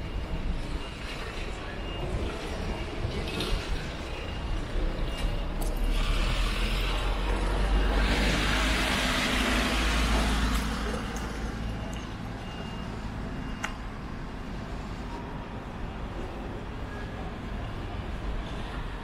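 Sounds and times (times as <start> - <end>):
van engine passing: 5.9 - 13.4.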